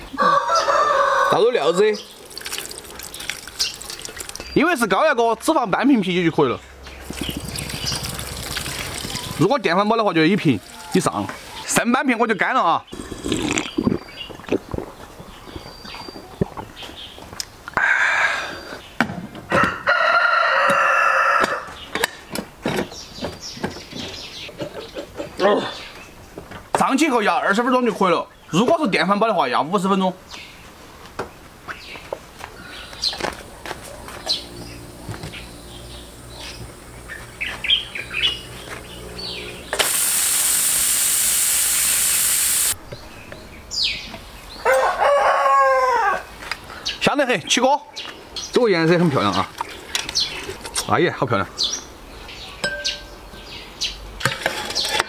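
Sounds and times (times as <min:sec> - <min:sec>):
birds chirping: 0:00.0 - 0:19.0, 0:21.6 - 0:44.8, 0:46.6 - 0:55.0
rooster crowing: 0:00.1 - 0:01.9, 0:19.5 - 0:21.8, 0:44.6 - 0:46.3
pressure cooker steam hissing: 0:39.8 - 0:42.8.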